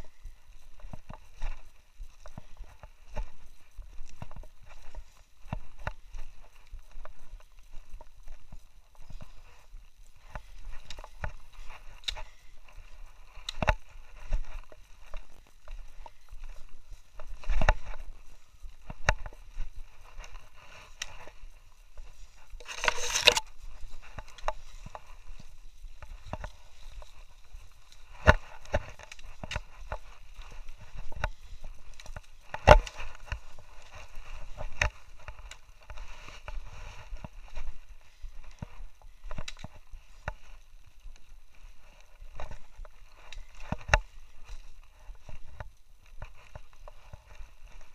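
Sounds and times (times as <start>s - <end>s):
brush rustling: 0.0s - 47.9s
footsteps on rocks: 0.0s - 47.9s
camera handling bumps: 22.6s - 23.5s.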